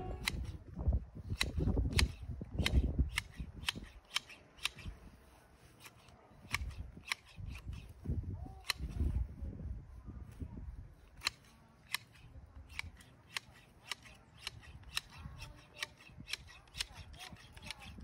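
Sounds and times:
hedge shears snipping: 0:00.0 - 0:00.5, 0:01.3 - 0:08.0, 0:11.1 - 0:18.0.

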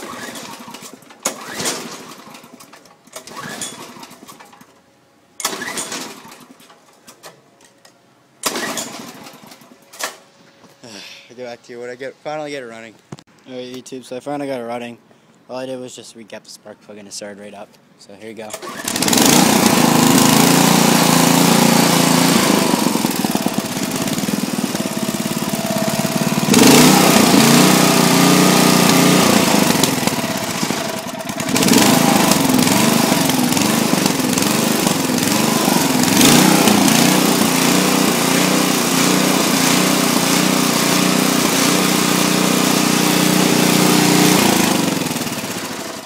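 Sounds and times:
small engine running fast: 0:00.0 - 0:02.4, 0:18.6 - 0:46.0.

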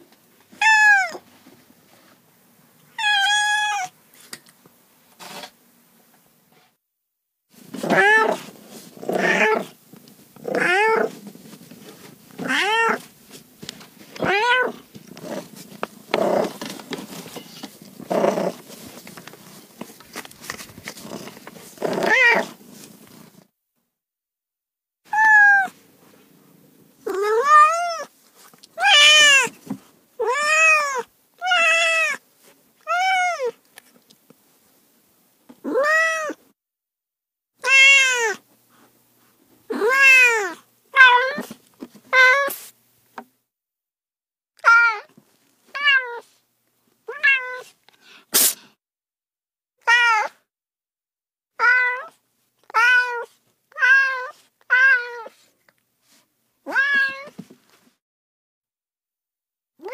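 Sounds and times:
cats meowing: 0:00.6 - 0:01.2, 0:07.8 - 0:08.4, 0:10.4 - 0:11.2, 0:12.4 - 0:13.1, 0:14.2 - 0:15.4, 0:21.8 - 0:22.6, 0:25.1 - 0:25.8, 0:28.8 - 0:29.5, 0:35.7 - 0:36.4, 0:37.6 - 0:38.4, 0:39.7 - 0:41.5, 0:47.1 - 0:47.7, 0:51.6 - 0:55.4, 0:56.7 - 0:57.4.

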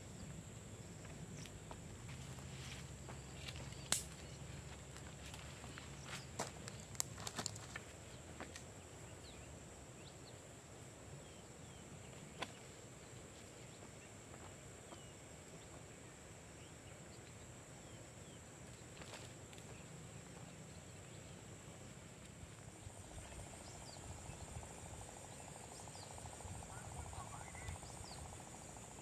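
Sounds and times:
high-pitched insect drone: 0:22.8 - 0:29.0.

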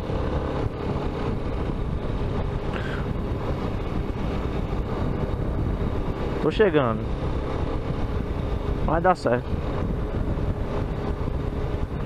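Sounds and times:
motorcycle engine running: 0:00.0 - 0:12.0
road noise: 0:00.0 - 0:12.0
wind noise: 0:00.0 - 0:12.0.

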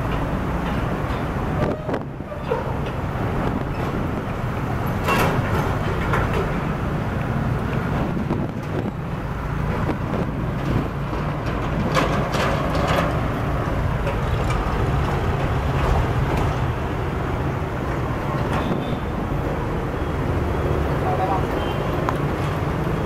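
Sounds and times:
rattles and clanks: 0:00.0 - 0:06.9, 0:09.6 - 0:17.2
diesel truck engines rumbling: 0:00.0 - 0:23.0
motorcycles and vans passing: 0:00.0 - 0:23.0.

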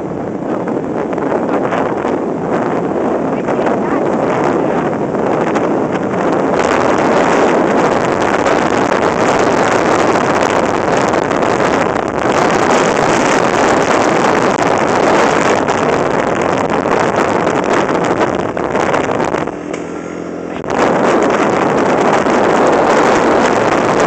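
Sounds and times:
wind rush on microphone: 0:00.0 - 0:24.0
atv engine: 0:00.1 - 0:24.0.

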